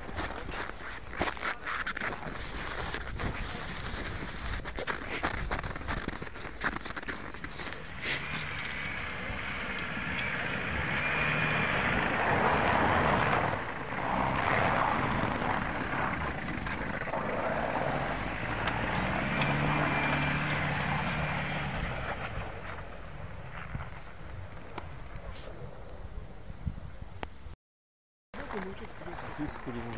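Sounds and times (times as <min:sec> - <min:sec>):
wind noise on microphone: 0:00.0 - 0:07.2, 0:23.5 - 0:27.6
van engine running: 0:06.7 - 0:24.7.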